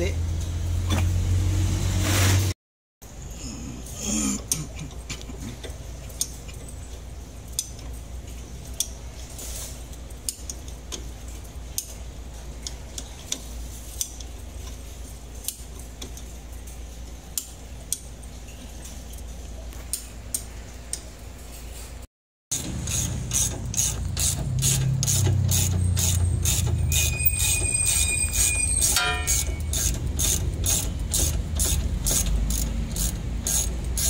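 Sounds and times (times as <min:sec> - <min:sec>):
ratchet wrench clicking on metal: 0:22.6 - 0:34.0.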